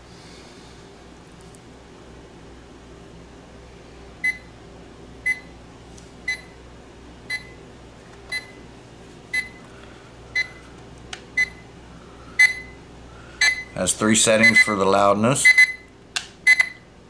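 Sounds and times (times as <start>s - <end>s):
alarm clock beeping: 12.4s - 12.8s, 13.4s - 13.8s, 14.4s - 14.8s, 15.4s - 15.8s.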